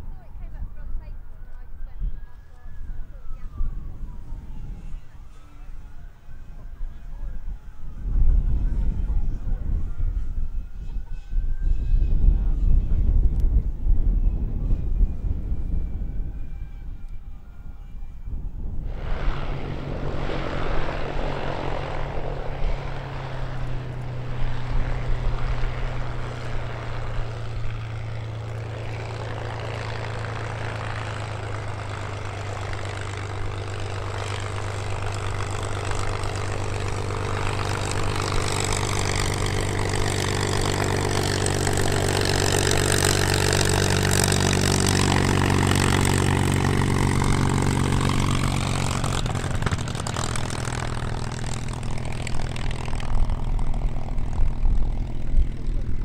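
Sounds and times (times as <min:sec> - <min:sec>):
propeller aircraft engine: 0:00.0 - 0:56.0.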